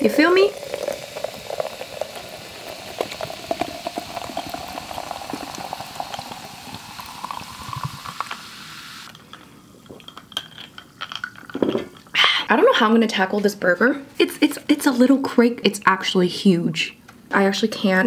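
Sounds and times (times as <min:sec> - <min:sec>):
sparkling water fizzing in glass: 0:00.0 - 0:09.2.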